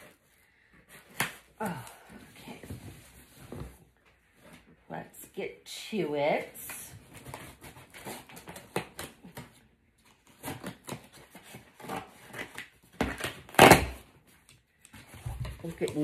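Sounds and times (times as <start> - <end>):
scissors cutting packing tape: 7.1 - 15.0.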